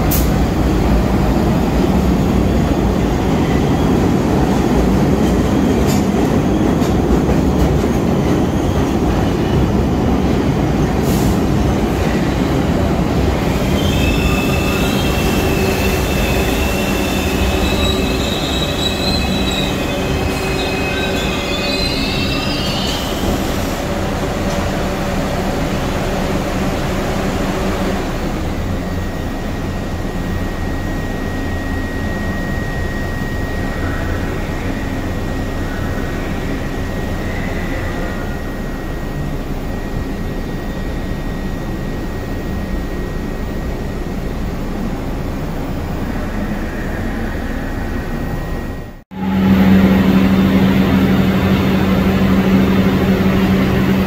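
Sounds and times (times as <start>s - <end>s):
train rumbling on track: 0.0s - 54.0s
train wheels squealing on rails: 2.1s - 24.7s, 28.8s - 43.9s.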